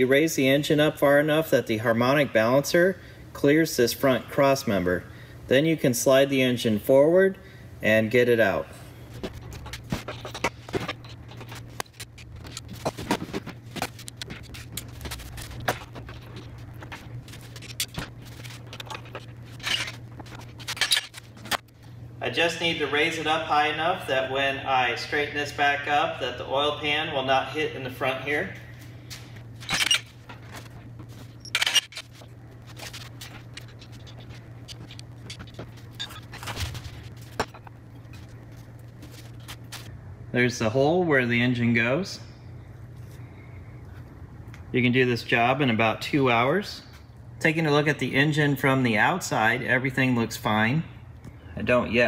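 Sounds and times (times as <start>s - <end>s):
low hum: 7.3s - 41.3s.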